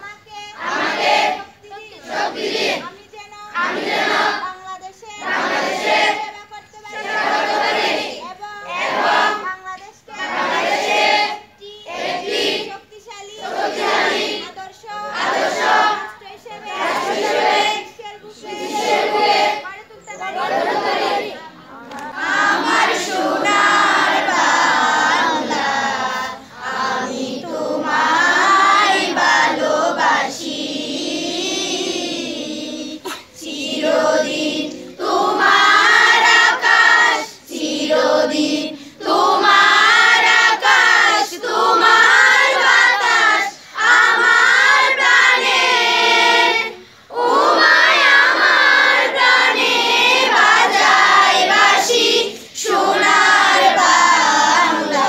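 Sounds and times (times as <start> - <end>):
children's choir singing: 0.0 - 55.0.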